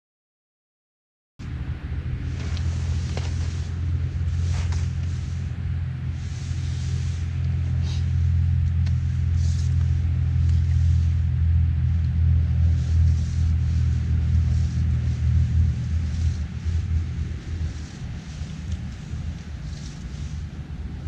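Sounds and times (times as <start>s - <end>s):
wind buffeting microphone: 1.4s - 21.0s
faint hisses: 12.1s - 21.0s.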